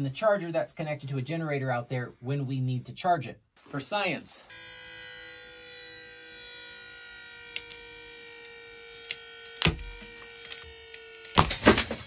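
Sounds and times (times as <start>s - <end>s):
hydraulic pump whining: 7.4s - 12.0s.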